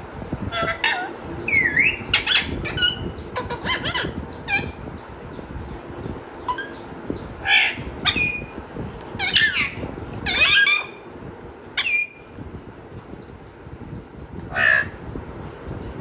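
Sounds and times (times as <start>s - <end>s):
parakeet squawking and whistling: 0.6s - 4.8s, 7.4s - 8.5s, 9.2s - 11.0s, 11.8s - 12.3s.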